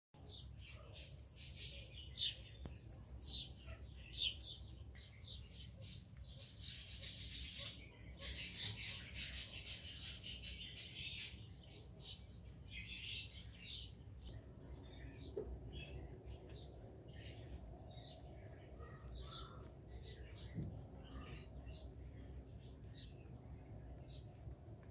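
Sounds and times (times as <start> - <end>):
small birds chirping: 0.2 - 24.9
faint steady hum: 10.6 - 24.9.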